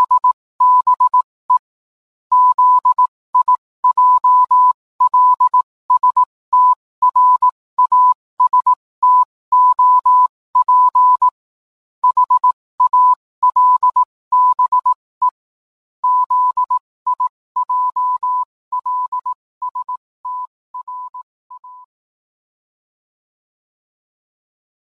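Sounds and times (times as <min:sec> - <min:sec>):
morse code beeps: 0:00.0 - 0:01.2, 0:02.3 - 0:11.4, 0:12.0 - 0:15.4, 0:16.0 - 0:21.9.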